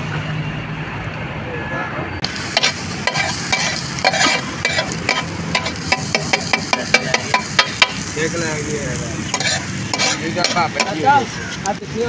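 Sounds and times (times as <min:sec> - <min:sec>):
food sizzling: 0:02.2 - 0:12.0
metal spatula striking iron griddle: 0:02.4 - 0:08.2, 0:09.3 - 0:11.2.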